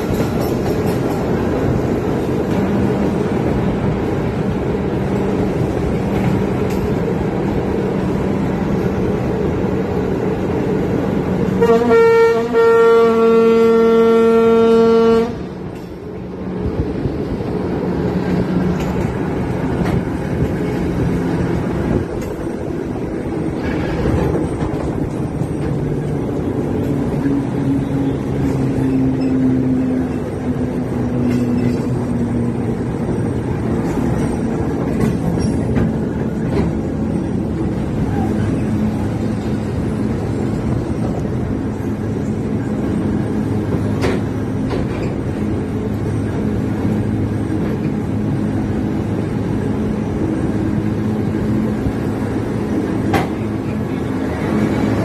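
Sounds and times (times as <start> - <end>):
locomotive engine and wheels: 0.0 - 55.0
train horn: 11.5 - 15.5.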